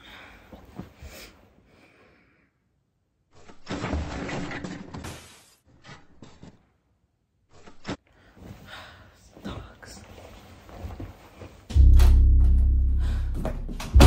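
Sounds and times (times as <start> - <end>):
bedding rustling: 9.3 - 11.8.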